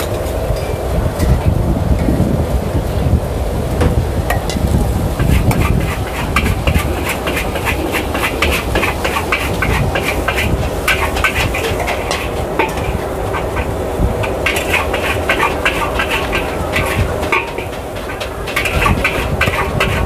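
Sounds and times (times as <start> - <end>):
gas burner roar: 0.0 - 20.0
metal spatula scraping wok: 5.2 - 20.0.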